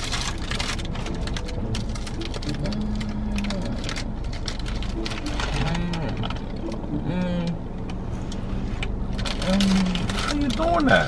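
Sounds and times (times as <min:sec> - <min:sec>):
crackling and rustling: 0:00.0 - 0:06.9, 0:07.8 - 0:11.0
woman moaning mmm: 0:02.5 - 0:03.9, 0:05.5 - 0:06.3, 0:07.0 - 0:07.7.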